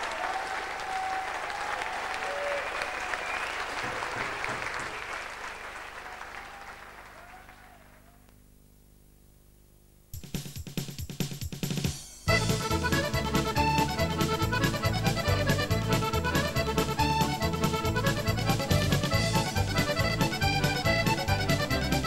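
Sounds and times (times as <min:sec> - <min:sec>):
audience applauding: 0:00.0 - 0:08.2
faint hum: 0:06.0 - 0:10.2.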